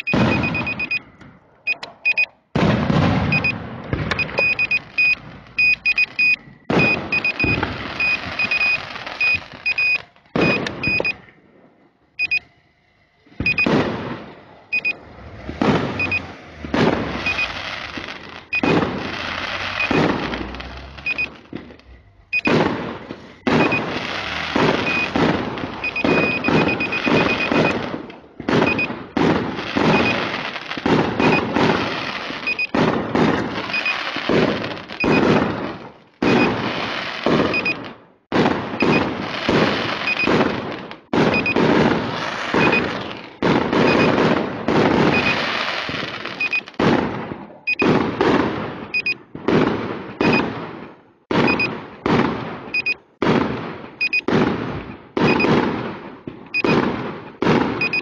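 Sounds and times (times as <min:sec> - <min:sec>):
short high beeps: 0:00.0 - 0:02.4, 0:03.3 - 0:11.3, 0:12.2 - 0:12.5, 0:13.4 - 0:13.7, 0:14.7 - 0:15.0, 0:16.0 - 0:16.3, 0:17.2 - 0:17.6, 0:18.5 - 0:18.8, 0:19.7 - 0:20.0, 0:21.0 - 0:21.4, 0:22.3 - 0:22.6, 0:23.5 - 0:24.0, 0:24.7 - 0:25.2, 0:25.8 - 0:27.8, 0:28.6 - 0:28.9, 0:29.9 - 0:30.3, 0:31.2 - 0:31.5, 0:32.4 - 0:32.8, 0:33.6 - 0:34.1, 0:35.0 - 0:35.3, 0:36.3 - 0:36.6, 0:37.5 - 0:37.8, 0:40.0 - 0:40.4, 0:41.3 - 0:41.6, 0:42.6 - 0:43.0, 0:43.8 - 0:44.2, 0:45.1 - 0:45.5, 0:46.4 - 0:46.7, 0:47.7 - 0:47.9, 0:48.9 - 0:49.2, 0:51.5 - 0:51.7, 0:52.8 - 0:53.0, 0:54.0 - 0:54.3, 0:55.3 - 0:55.5, 0:56.6 - 0:56.8, 0:57.8 - 0:58.0
fireworks bangs and crackling: 0:00.0 - 0:12.4, 0:13.2 - 0:58.0.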